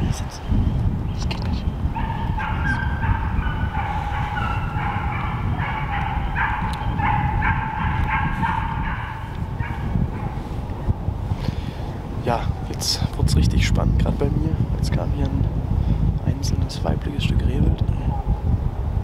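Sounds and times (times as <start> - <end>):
low rumble: 0.0 - 19.0
hunting dogs baying: 1.8 - 10.6.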